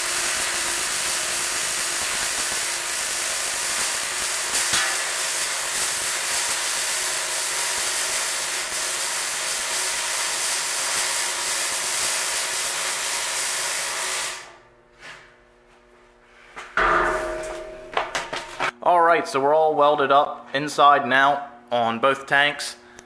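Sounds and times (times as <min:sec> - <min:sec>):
arc welding crackling hiss: 0:00.0 - 0:14.6.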